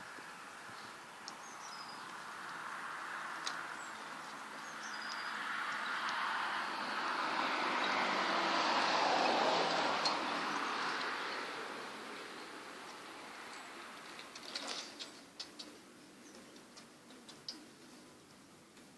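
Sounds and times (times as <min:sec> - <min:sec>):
vehicle passing: 0:00.0 - 0:14.2
high bird chirps: 0:03.2 - 0:06.1.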